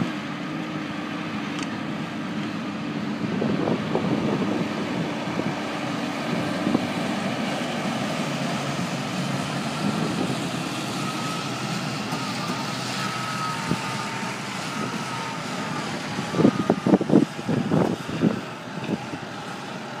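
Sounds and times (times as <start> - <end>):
tractor engine running: 0.0 - 20.0
trailer clunks and rattles: 6.2 - 19.3.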